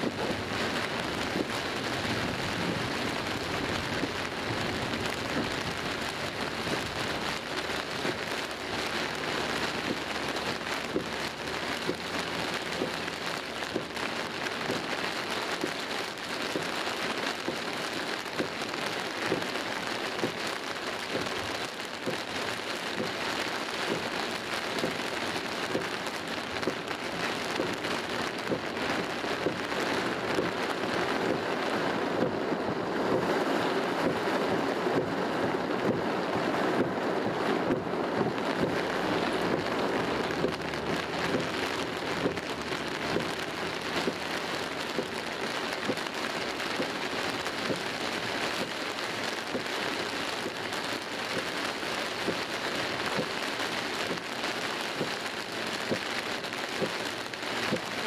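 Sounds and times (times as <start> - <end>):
heavy rain on car roof: 0.0 - 58.0.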